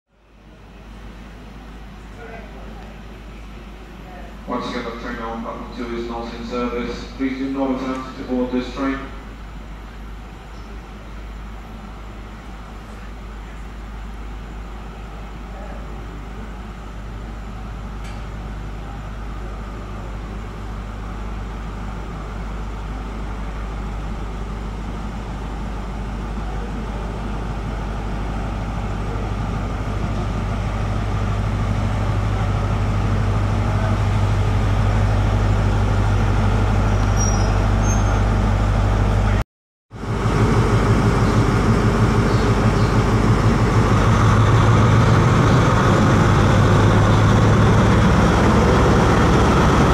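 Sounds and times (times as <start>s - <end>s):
diesel train engines droning: 0.1s - 49.9s.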